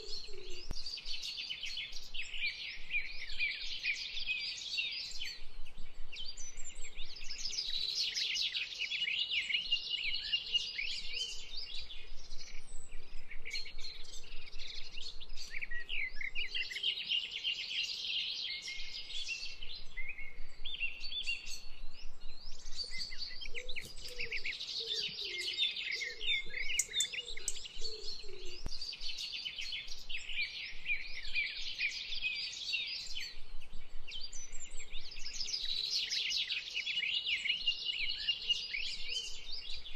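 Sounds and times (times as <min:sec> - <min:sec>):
small birds chirping: 0:00.0 - 0:39.9
lower warbling bird call: 0:22.8 - 0:28.7.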